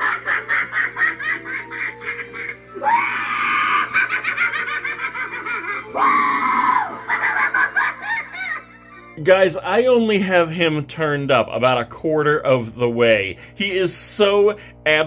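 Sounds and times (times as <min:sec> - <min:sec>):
rapid cackling laugh: 0:00.0 - 0:09.2
spooky music: 0:00.0 - 0:09.2
high-pitched shrieks: 0:06.0 - 0:07.0.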